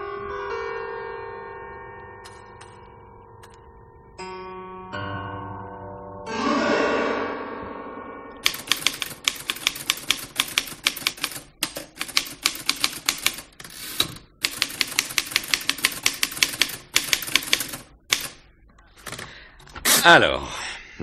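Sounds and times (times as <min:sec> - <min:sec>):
typewriter typing: 0:02.2 - 0:03.6, 0:08.4 - 0:19.4.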